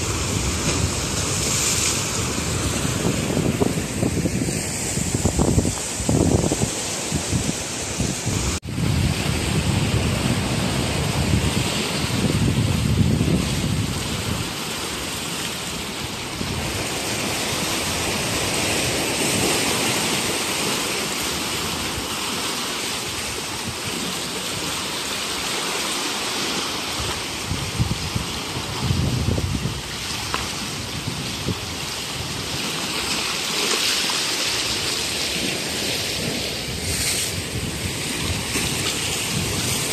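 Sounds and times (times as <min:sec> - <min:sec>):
wind buffeting microphone: 0:00.0 - 0:14.8, 0:27.0 - 0:33.0, 0:34.7 - 0:39.9
surf washing over rocks: 0:00.0 - 0:39.9.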